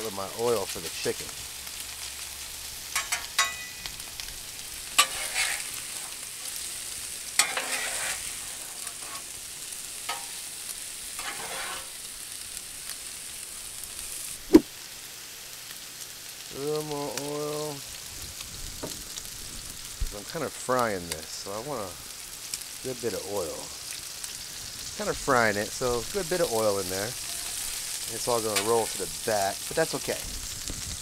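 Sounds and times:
food sizzling on a griddle: 0:00.0 - 0:31.0
metal spatula scraping steel: 0:03.0 - 0:03.8, 0:04.9 - 0:06.7, 0:07.4 - 0:09.4, 0:10.0 - 0:10.5, 0:11.1 - 0:12.0, 0:27.2 - 0:27.9.

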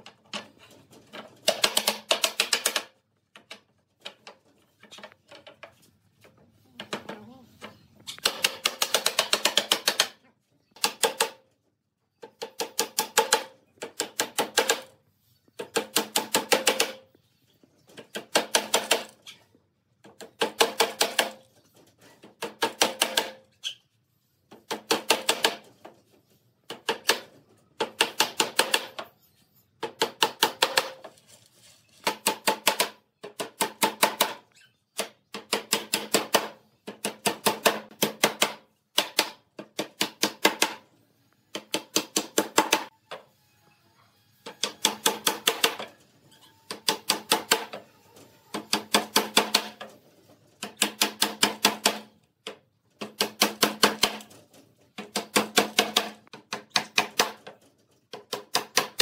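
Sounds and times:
hammer striking nails into wood: 0:01.4 - 0:03.5, 0:08.2 - 0:10.2, 0:12.3 - 0:14.9, 0:15.6 - 0:17.1, 0:20.2 - 0:21.4, 0:22.4 - 0:23.4, 0:24.6 - 0:25.7, 0:26.7 - 0:29.1, 0:29.8 - 0:31.1, 0:32.0 - 0:34.4, 0:35.0 - 0:40.8, 0:41.5 - 0:42.9, 0:44.6 - 0:45.9, 0:46.7 - 0:47.8, 0:48.5 - 0:49.9, 0:50.6 - 0:54.4, 0:55.0 - 0:57.5, 0:58.1 - 0:59.0.

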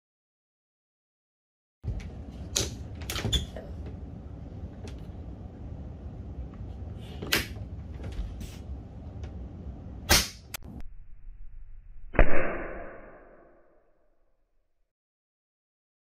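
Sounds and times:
low room noise: 0:01.8 - 0:11.9.

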